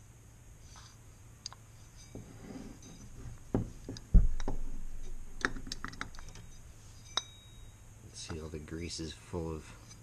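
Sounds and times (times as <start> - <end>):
metal knocking on wooden workbench: 3.5 - 4.8.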